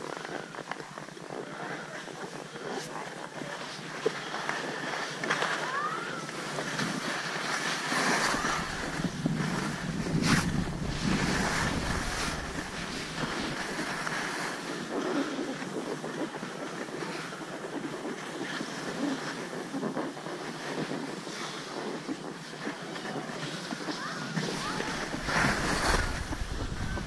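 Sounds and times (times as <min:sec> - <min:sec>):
skis scraping over snow: 0:00.0 - 0:27.0
wind rumble on microphone: 0:06.1 - 0:27.0.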